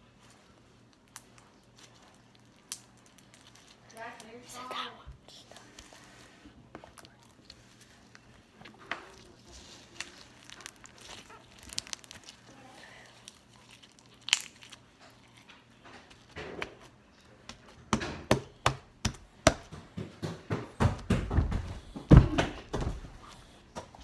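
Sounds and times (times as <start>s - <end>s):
slime squeezed with crackles and pops: 9.0s - 15.0s.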